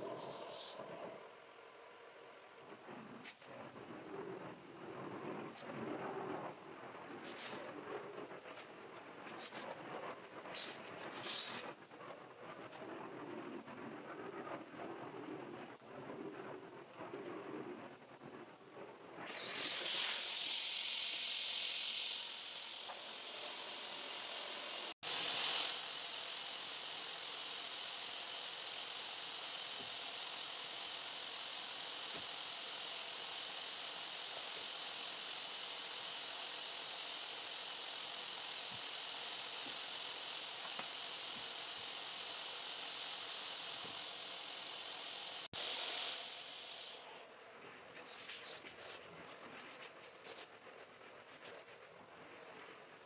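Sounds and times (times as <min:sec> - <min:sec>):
carpet extraction tool hissing: 0:00.0 - 0:03.5, 0:07.2 - 0:11.8, 0:19.2 - 0:47.2.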